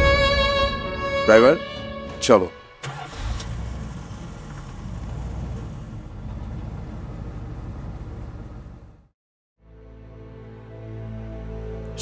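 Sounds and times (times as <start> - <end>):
car engine and tyre noise: 2.8 - 9.2.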